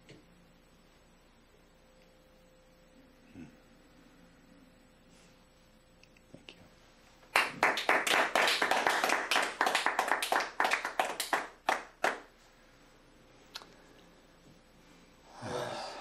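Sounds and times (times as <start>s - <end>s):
small group applauding: 7.3s - 12.3s.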